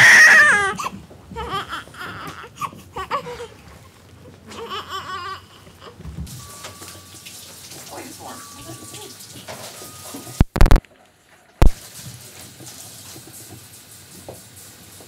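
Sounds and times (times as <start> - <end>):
baby crying: 0.0 - 3.6, 4.4 - 6.0.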